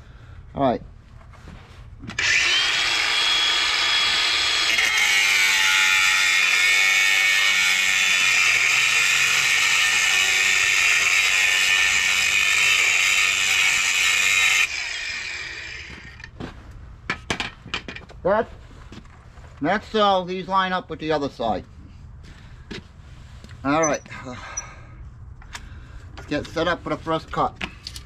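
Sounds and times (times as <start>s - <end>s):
angle grinder cutting steel: 2.2s - 16.3s.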